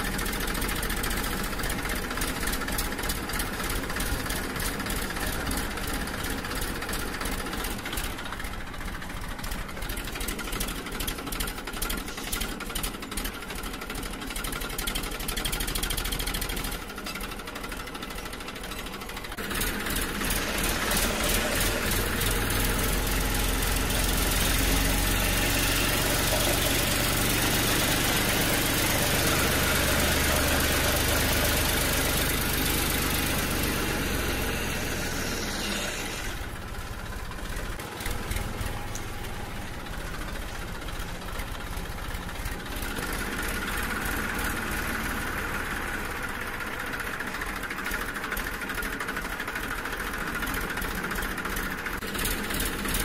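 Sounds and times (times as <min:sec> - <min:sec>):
motor running: 0:19.4 - 0:46.7.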